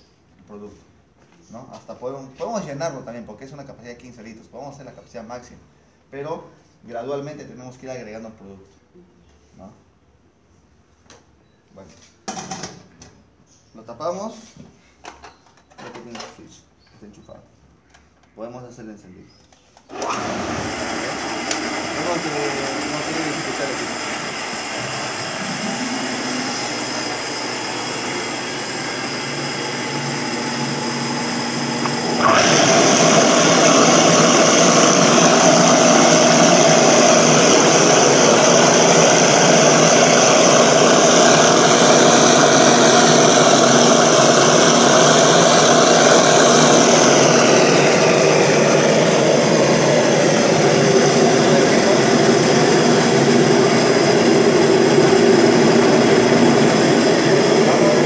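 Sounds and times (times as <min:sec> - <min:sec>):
blender motor running: 0:19.9 - 0:58.0.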